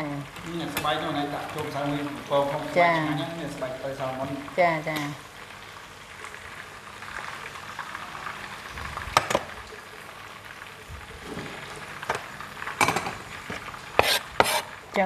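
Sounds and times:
knife on wooden cutting board: 0:14.0 - 0:14.7.

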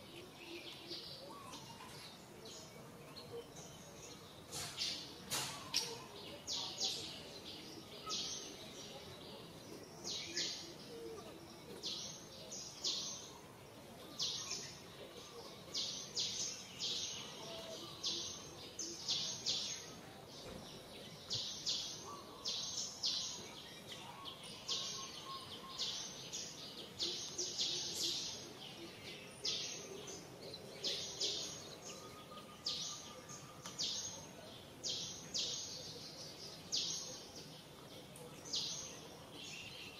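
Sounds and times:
faint outdoor background: 0:00.0 - 0:39.9.

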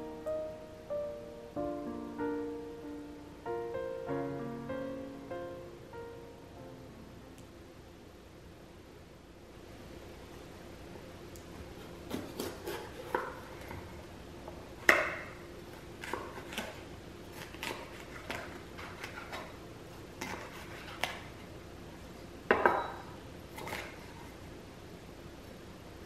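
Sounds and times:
knife chopping on wooden board: 0:12.1 - 0:13.4.

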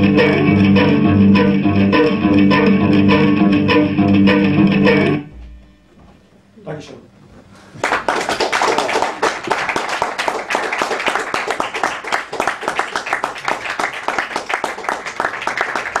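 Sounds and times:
audience applauding: 0:07.8 - 0:16.0.

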